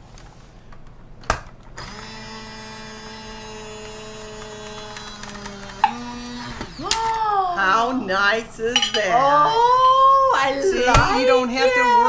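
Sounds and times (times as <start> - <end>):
jar opener motor whirring: 1.8 - 7.2.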